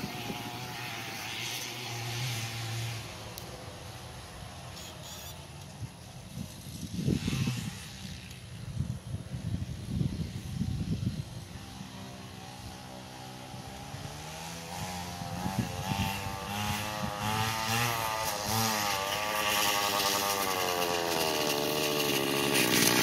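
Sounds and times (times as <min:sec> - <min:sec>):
scooter engine revving: 0:00.0 - 0:03.4, 0:10.4 - 0:23.0.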